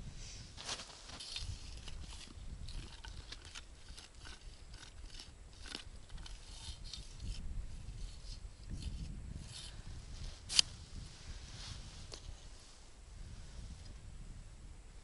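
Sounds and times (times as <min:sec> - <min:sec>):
hand crunching and scraping snow: 0:00.6 - 0:07.0.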